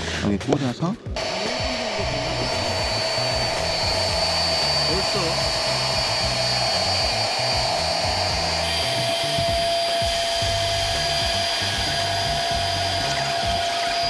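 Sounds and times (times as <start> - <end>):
electric air pump running: 1.2 - 14.0.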